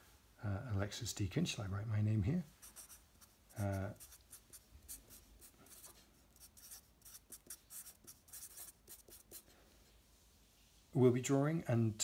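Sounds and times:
marker scratching on paper: 2.6s - 9.6s.

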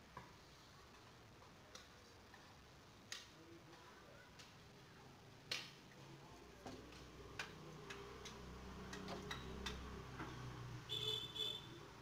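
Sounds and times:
sharp clicks and taps: 5.5s - 5.8s, 6.6s - 10.3s.

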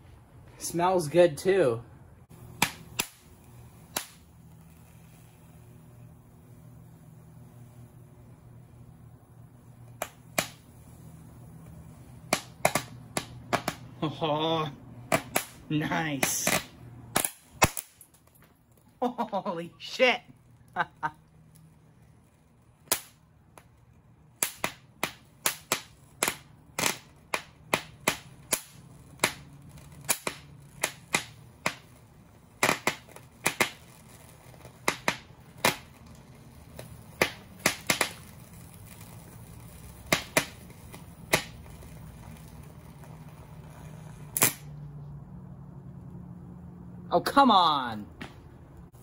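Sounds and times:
low steady hum: 0.0s - 49.0s.

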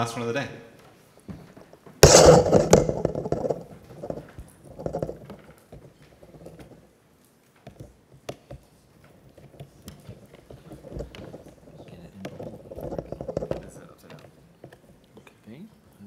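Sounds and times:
laptop handling bump and rustle: 1.4s - 6.8s, 7.6s - 14.9s
cable plugging clicks and knocks: 2.0s - 5.3s.

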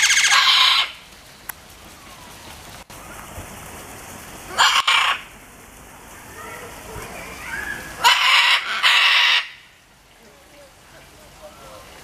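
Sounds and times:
macaws squawking: 0.0s - 1.0s, 4.5s - 5.3s, 7.2s - 9.8s.

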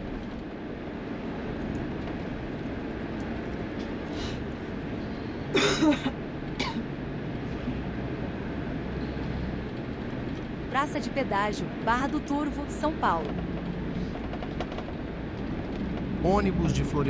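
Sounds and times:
vehicle road and engine noise: 0.0s - 17.0s
person coughing: 5.5s - 6.8s.

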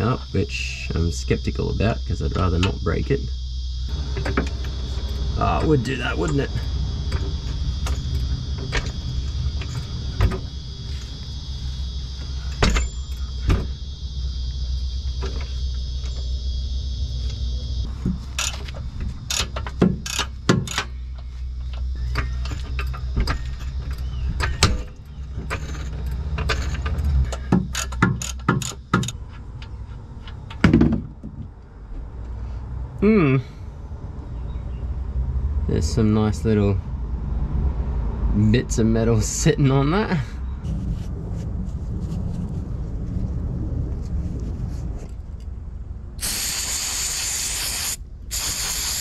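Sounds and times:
low rumble: 0.0s - 19.3s, 40.2s - 46.2s
ratchet metal clicks: 18.3s - 21.0s, 22.1s - 29.7s.

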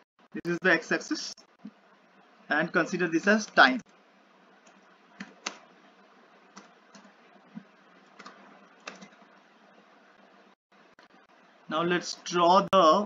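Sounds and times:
keyboard keys clicking: 8.2s - 9.2s.

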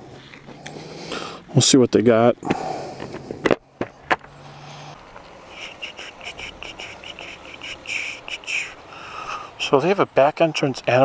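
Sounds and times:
quick high-pitched ticking: 5.5s - 8.8s.

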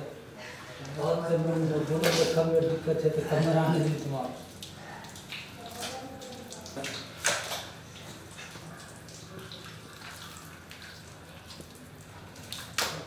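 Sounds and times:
squelches and splashes: 0.6s - 13.0s.

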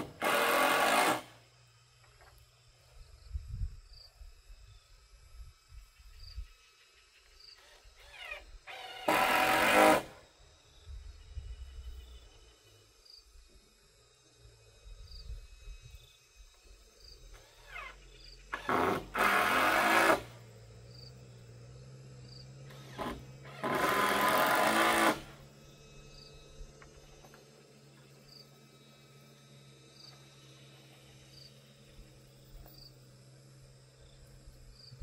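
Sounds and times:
power drill driving screws: 0.0s - 1.4s, 7.6s - 10.2s, 17.3s - 20.4s, 22.7s - 25.6s.

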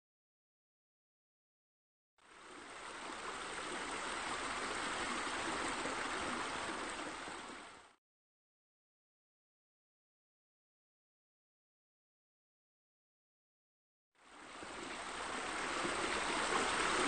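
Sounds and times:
running water rushing: 2.2s - 8.0s, 14.2s - 17.0s.

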